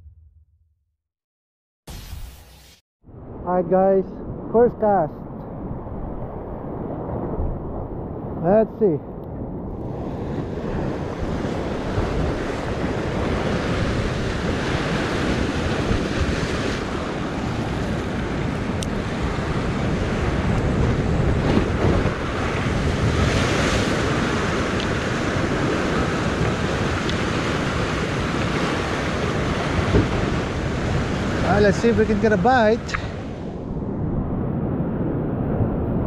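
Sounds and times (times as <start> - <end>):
wind buffeting microphone: 3.1 - 36.0
ocean surf breaking over rocks: 9.9 - 33.5.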